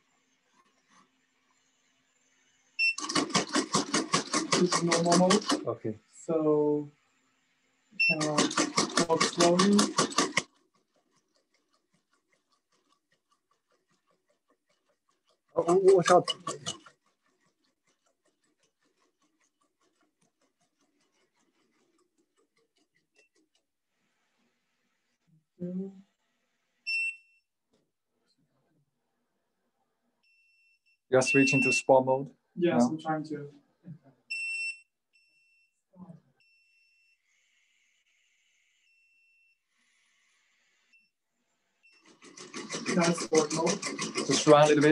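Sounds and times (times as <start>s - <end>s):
robot dog walking with rapid ticking: 2.8s - 5.8s, 8.0s - 23.7s, 41.9s - 44.9s
electronic beeps: 8.0s - 8.4s, 31.2s - 31.9s.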